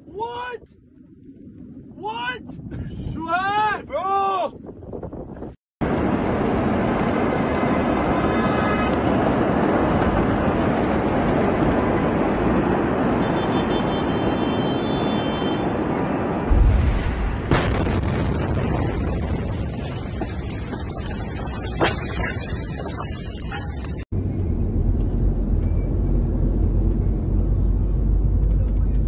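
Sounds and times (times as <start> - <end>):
continuous rumbling roar: 4.1 - 29.0
heavy low explosion boom: 16.4 - 21.8.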